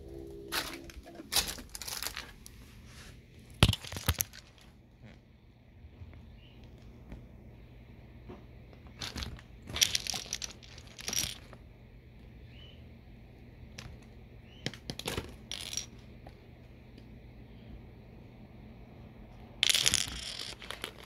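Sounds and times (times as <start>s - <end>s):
plastic bricks clattering: 0.6s - 2.4s, 3.6s - 4.8s, 8.9s - 11.6s, 14.6s - 16.0s, 19.6s - 21.0s.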